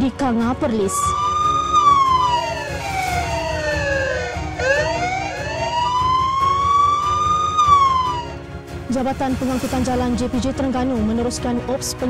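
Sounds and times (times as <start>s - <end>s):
emergency siren wailing: 1.0s - 8.5s.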